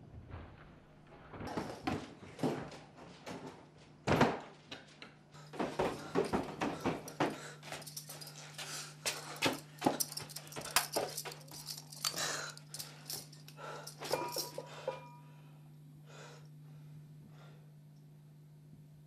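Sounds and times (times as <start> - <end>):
steady low hum: 0.0 - 19.0
man breathing hard and gasping: 11.6 - 15.1.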